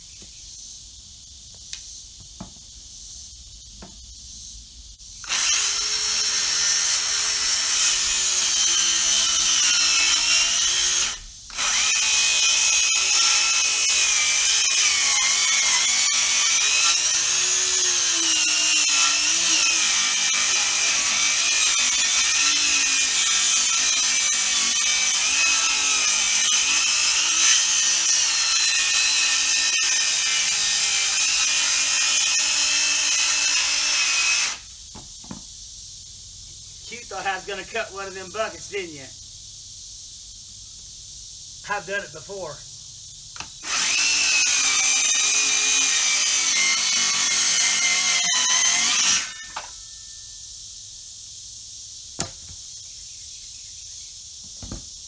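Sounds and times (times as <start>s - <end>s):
power saw cutting wood: 5.2s - 34.7s, 43.4s - 49.8s.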